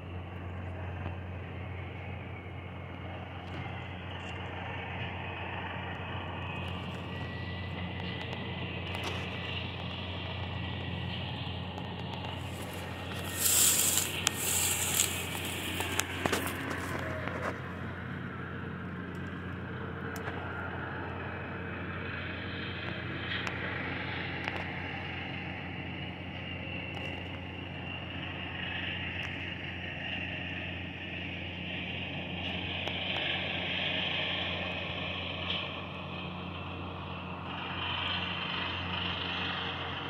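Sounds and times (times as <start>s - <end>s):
heavy machinery droning: 0.0s - 40.0s
crackling and scraping noise: 7.8s - 17.7s.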